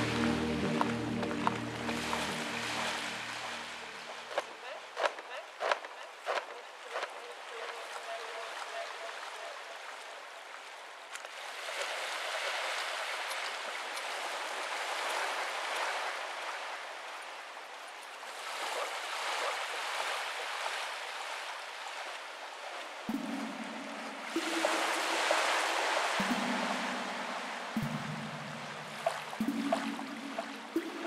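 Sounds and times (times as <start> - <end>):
low sustained musical tone: 0.0 - 4.3, 23.1 - 31.0
rushing surf-like noise: 0.0 - 4.5, 24.0 - 29.5.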